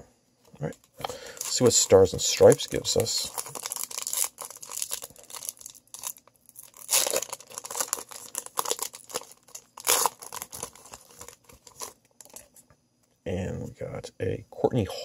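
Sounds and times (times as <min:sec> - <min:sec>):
foil wrapper tearing and crinkling: 0:01.0 - 0:12.5.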